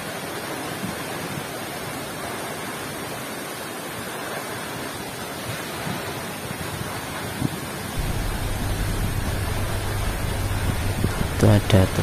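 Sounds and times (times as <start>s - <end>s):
waterfall plunging onto rocks: 8.0s - 12.0s.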